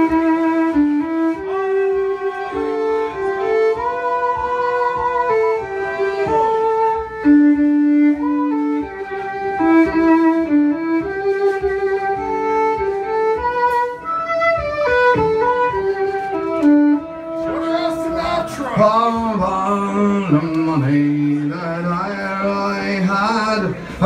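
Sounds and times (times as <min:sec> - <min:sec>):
fiddle: 0:00.0 - 0:24.0
man's voice: 0:17.6 - 0:24.0.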